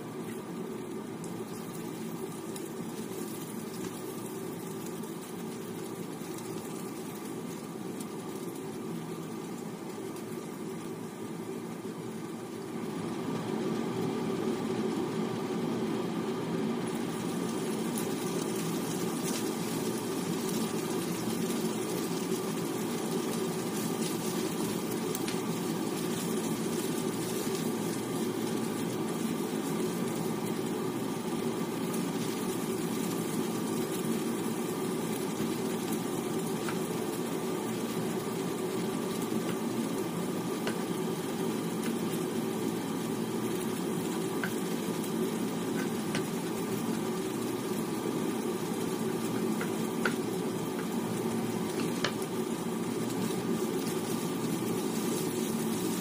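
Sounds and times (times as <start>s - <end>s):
meat and garlic sizzling in oil: 0.0s - 56.0s
spatula stirring in pan: 16.8s - 56.0s.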